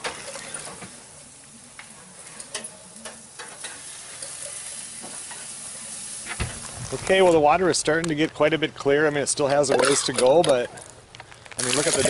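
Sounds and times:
food sizzling on a grill: 0.0 - 7.4, 11.6 - 12.0.

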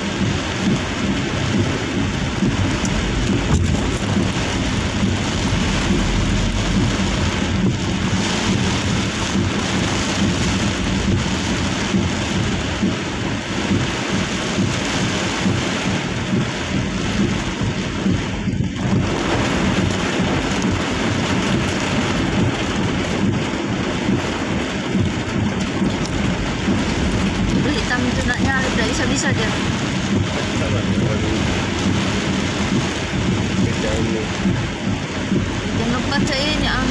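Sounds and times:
heavy rain on vehicle roof: 0.0 - 36.9.

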